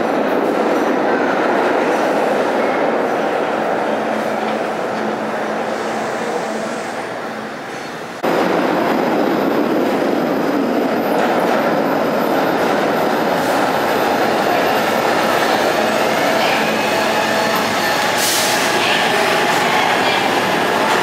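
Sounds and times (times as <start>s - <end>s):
train wheels rumbling on rails: 7.8s - 21.0s.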